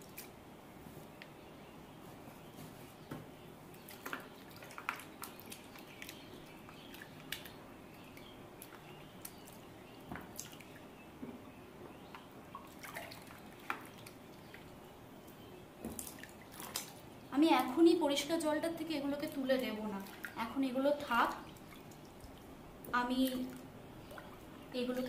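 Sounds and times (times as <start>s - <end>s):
small water splashes and drips: 3.7s - 10.9s, 12.0s - 14.8s, 15.8s - 17.8s, 19.2s - 25.0s.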